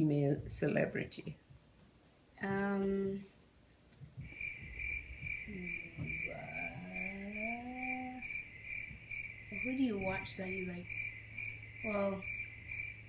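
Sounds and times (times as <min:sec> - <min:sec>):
pulsing high chirping tone: 0:04.3 - 0:13.0
person humming: 0:05.5 - 0:08.3.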